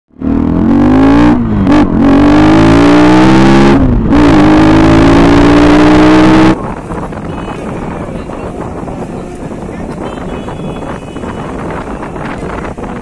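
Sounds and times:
motorcycle engine accelerating: 0.1 - 7.3.

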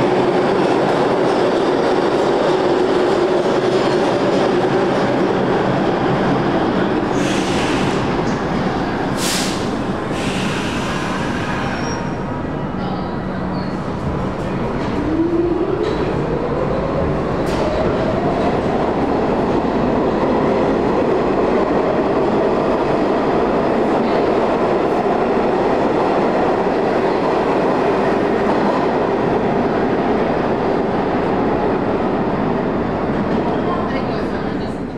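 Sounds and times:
subway train traction motor whine: 0.0 - 34.9
train wheels on rails: 13.7 - 34.9.

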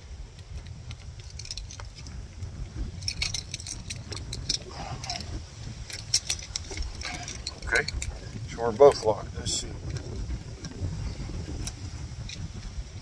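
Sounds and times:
wind rumble on microphone: 0.0 - 13.0
keys jangling in a lock: 0.8 - 2.2, 2.9 - 8.2.

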